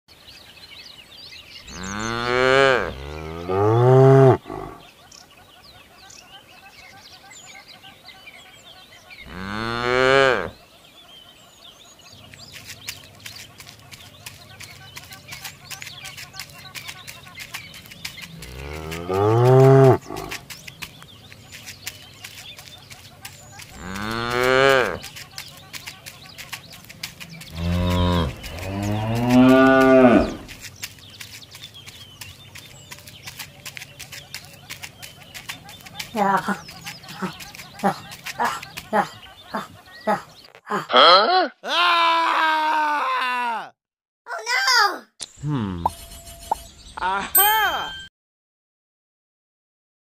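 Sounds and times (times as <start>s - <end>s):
faint birds chirping: 0.1s - 41.0s, 44.3s - 48.1s
cow mooing: 1.7s - 4.8s, 9.3s - 10.5s, 18.4s - 20.3s, 23.8s - 25.0s, 27.5s - 30.4s.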